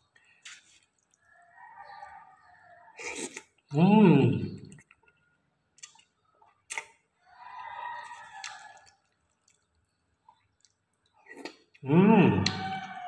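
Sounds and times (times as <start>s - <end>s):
noodle slurp: 3.0s - 3.6s
mouth smacking while eating: 3.0s - 3.8s, 5.8s - 7.0s, 8.0s - 9.7s.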